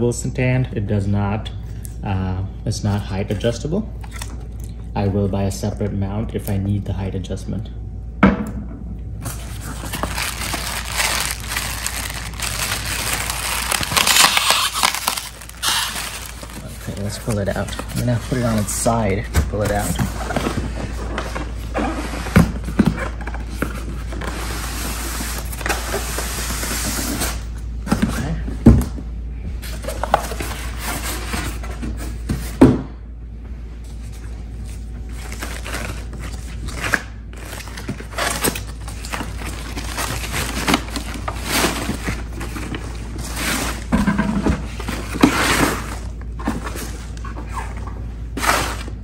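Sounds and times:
plastic bag crackling: 9.5s - 18.4s.

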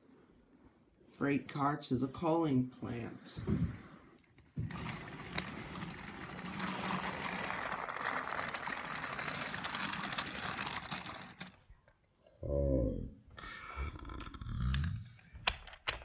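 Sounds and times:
toy train motor whirring: 4.6s - 11.6s.

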